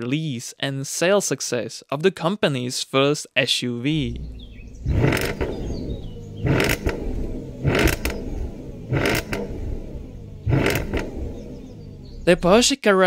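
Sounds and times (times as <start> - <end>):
car engine idling: 4.0 - 12.7.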